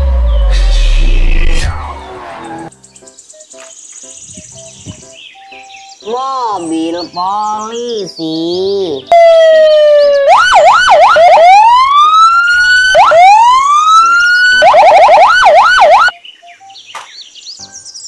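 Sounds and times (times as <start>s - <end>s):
police siren yelp and wail: 9.1s - 16.1s.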